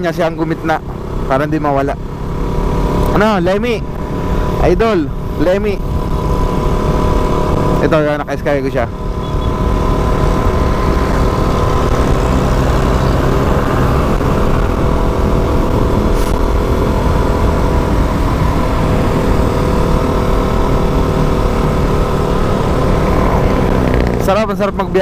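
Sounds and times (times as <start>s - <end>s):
motorcycle engine running: 0.0s - 25.0s
wind noise on microphone: 9.2s - 24.2s.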